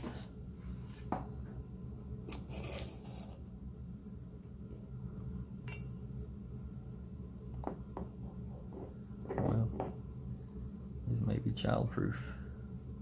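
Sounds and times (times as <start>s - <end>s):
steady low hum: 0.0s - 13.0s
knife scraping and handling: 2.3s - 3.4s.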